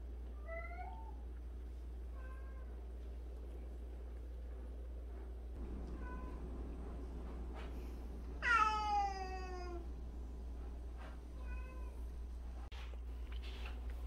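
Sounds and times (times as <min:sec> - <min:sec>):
cat meowing: 0:05.9 - 0:06.4, 0:08.4 - 0:09.9, 0:11.3 - 0:12.1.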